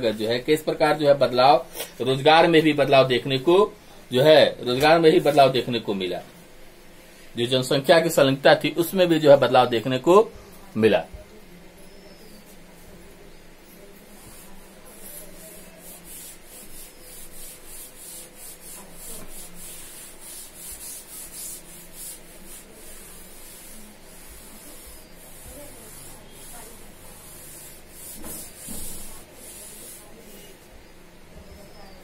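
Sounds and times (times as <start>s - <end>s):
duster rubbing chalkboard: 13.8s - 30.7s.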